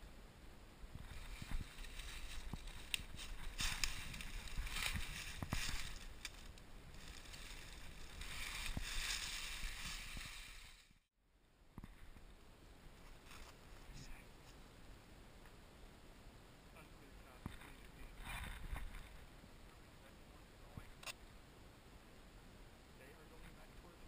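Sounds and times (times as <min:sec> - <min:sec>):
dry leaves rustling and crunching: 0:01.0 - 0:10.9.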